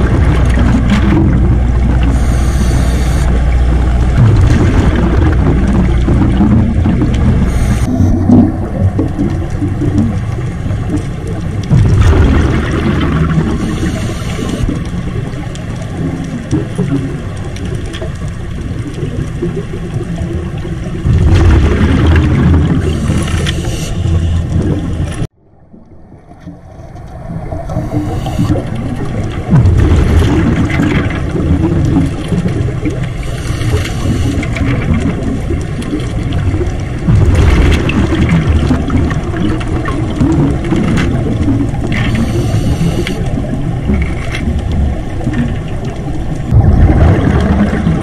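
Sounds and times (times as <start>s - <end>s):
bubble exhalations: 0.0s - 10.2s, 11.7s - 14.8s, 21.0s - 23.8s, 27.7s - 43.2s, 46.5s - 48.0s
low underwater rumble: 0.0s - 48.0s.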